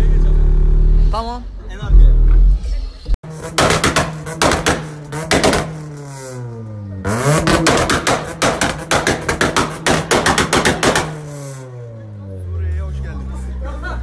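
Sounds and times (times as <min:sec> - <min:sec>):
car engine revving: 0:00.0 - 0:14.0
exhaust popping and crackling: 0:03.3 - 0:06.4, 0:07.1 - 0:11.6.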